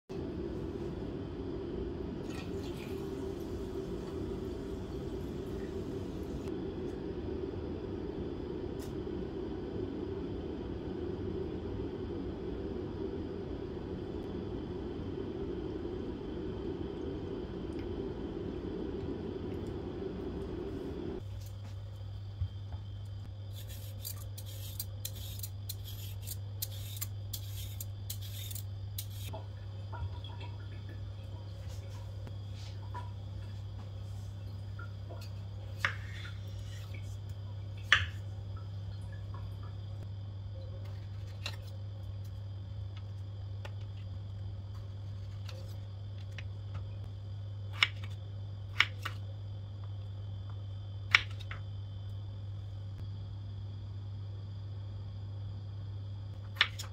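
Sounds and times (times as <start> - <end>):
steady low hum: 0.1 - 56.9
peeler scraping potato skin: 23.5 - 29.3.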